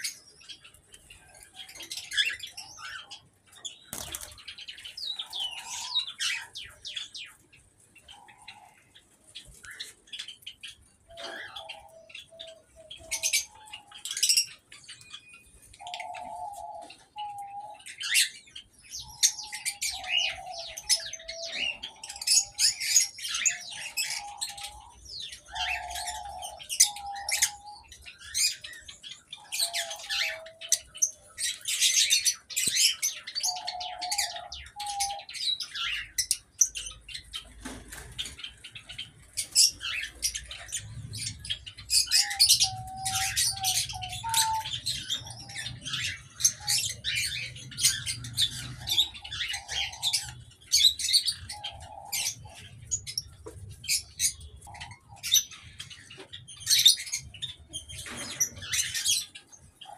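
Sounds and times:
small birds chirping in chorus: 0.0s - 59.9s
lower bird call: 42.0s - 45.9s.

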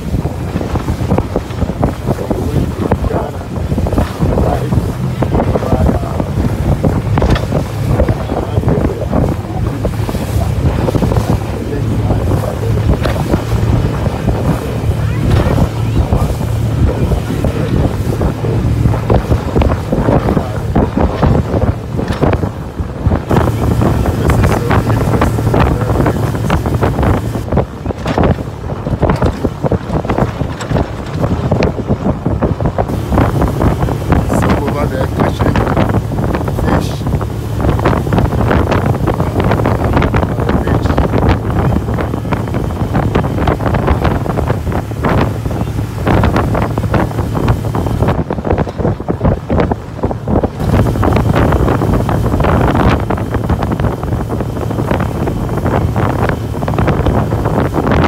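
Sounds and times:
water rushing past: 0.0s - 58.0s
wind buffeting microphone: 0.0s - 58.0s
steady low drone: 2.2s - 27.6s, 32.9s - 48.2s
steady low hum: 32.9s - 48.2s.

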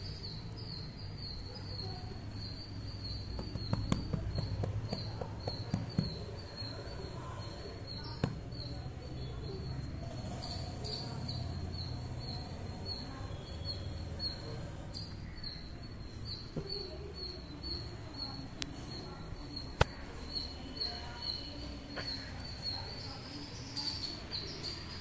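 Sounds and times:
sharp taps: 3.3s - 6.2s.

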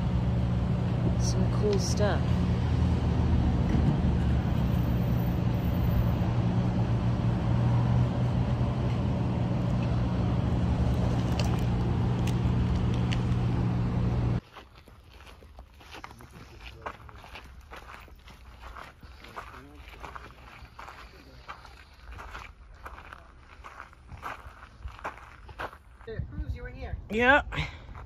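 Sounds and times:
vehicle engine hum: 0.0s - 14.4s
traffic noise: 0.0s - 26.1s.

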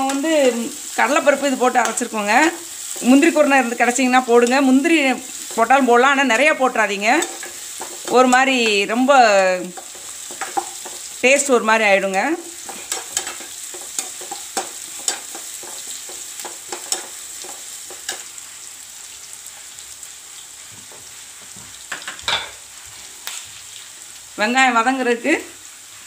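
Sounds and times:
onions sizzling in hot oil: 0.0s - 26.0s
ladle scraping and clicking on pan: 7.2s - 8.8s, 9.7s - 11.1s, 12.5s - 18.3s.

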